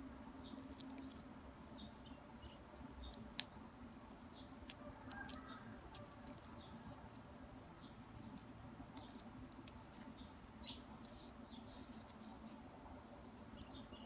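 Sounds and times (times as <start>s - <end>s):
low background hum: 0.0s - 14.0s
ribbon rustling and scraping: 2.8s - 13.7s.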